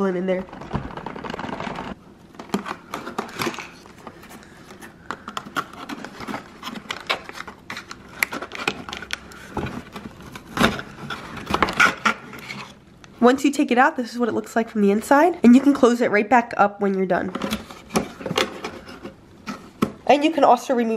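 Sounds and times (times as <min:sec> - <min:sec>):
cardboard scraping and rustling: 0:00.5 - 0:12.8.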